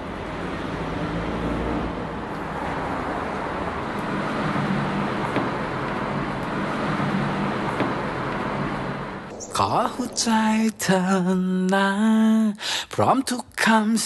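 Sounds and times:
steady rushing noise: 3.6 - 11.7.

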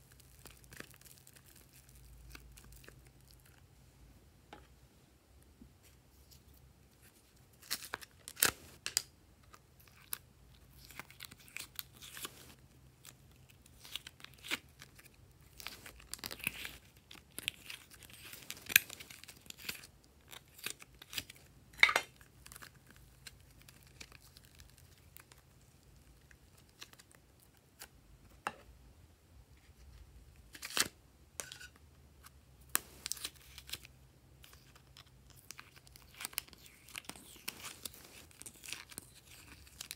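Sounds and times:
slime crackling and popping: 0.0 - 3.6
plastic crinkling: 32.8 - 39.9.

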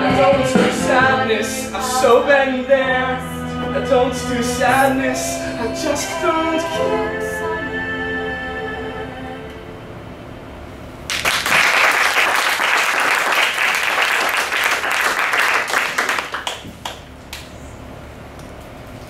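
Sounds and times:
crowd clapping: 11.1 - 17.5.

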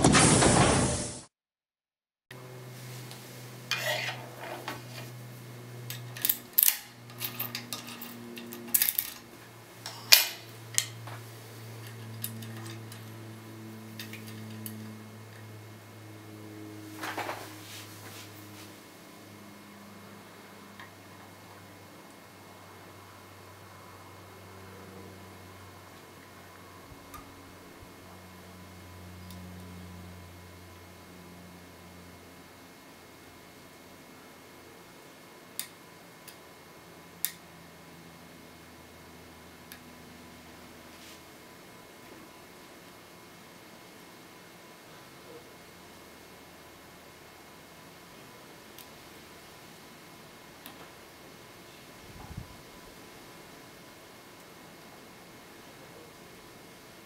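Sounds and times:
steady low hum: 2.4 - 57.0
lock picks clicking and scraping: 5.8 - 10.9, 11.8 - 13.2, 14.0 - 14.9.

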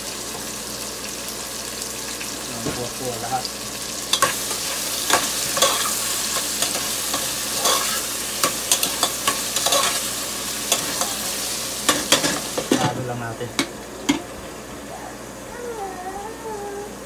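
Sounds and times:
food sizzling in a pot: 0.0 - 15.3
spoon scraping a pot: 4.2 - 10.1.

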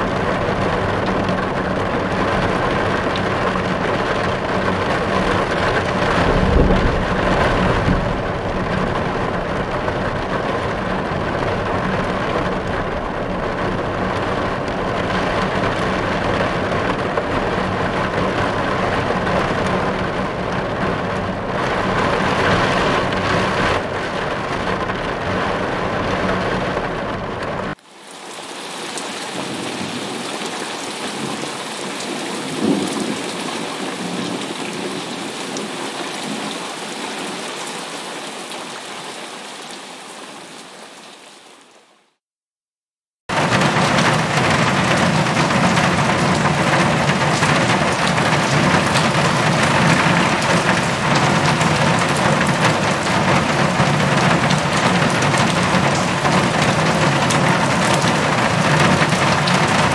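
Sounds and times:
thunder: 0.0 - 27.8, 32.4 - 34.9, 43.3 - 59.9
rain drumming on a windshield: 0.0 - 38.3, 43.3 - 59.9
heavy outdoor rain: 0.0 - 42.2, 43.3 - 59.9
low rumble: 4.4 - 27.8.

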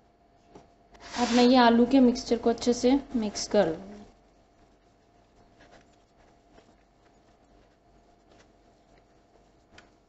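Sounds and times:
hands mixing food in bowl: 3.4 - 10.0.

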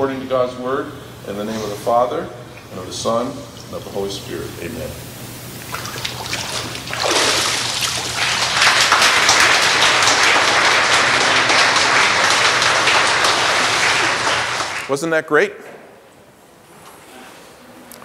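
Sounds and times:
water splashing in a pool: 5.6 - 9.6
congregation applauding: 6.9 - 15.0.

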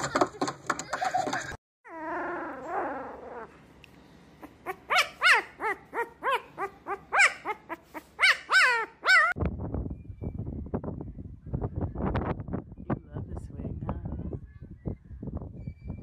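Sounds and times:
puppy howling: 1.9 - 3.6, 4.4 - 9.4
puppy yipping: 4.4 - 9.4.

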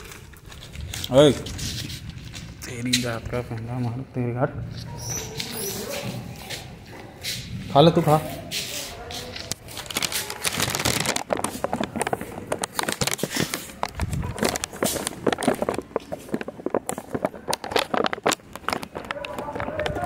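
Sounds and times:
hurried footsteps on concrete: 4.8 - 10.4, 11.5 - 20.0.

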